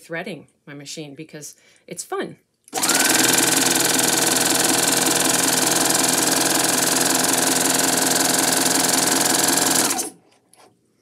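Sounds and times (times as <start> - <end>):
sewing machine motor hum: 2.7 - 10.2.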